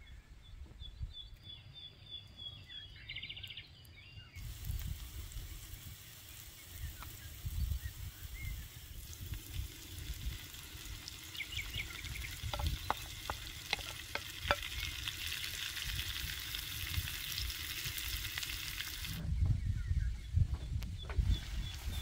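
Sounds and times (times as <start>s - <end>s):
vegetables sizzling in a skillet: 4.4s - 19.2s
spatula knocking on pan: 12.5s - 14.7s.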